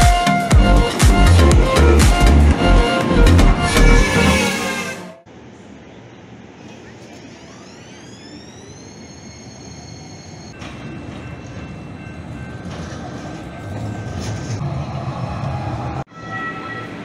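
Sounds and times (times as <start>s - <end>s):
train wheels rumbling on rail: 6.6s - 16.1s.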